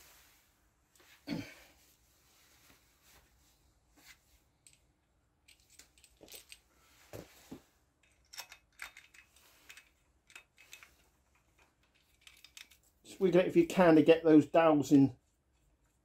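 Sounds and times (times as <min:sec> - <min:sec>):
light metallic clicks and clinks: 0:04.6 - 0:06.7, 0:08.0 - 0:12.9.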